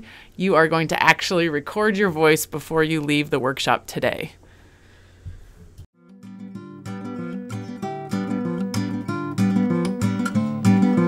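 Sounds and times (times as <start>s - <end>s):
strummed acoustic guitar music: 6.0s - 11.0s.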